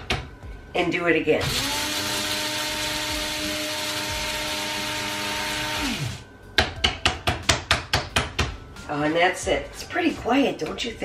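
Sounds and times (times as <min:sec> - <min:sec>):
coffee grinder whirring: 0:01.4 - 0:06.2.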